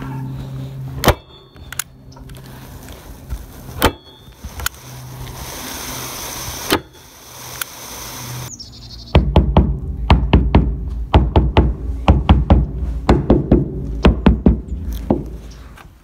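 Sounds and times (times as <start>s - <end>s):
hammer striking: 9.2s - 15.4s.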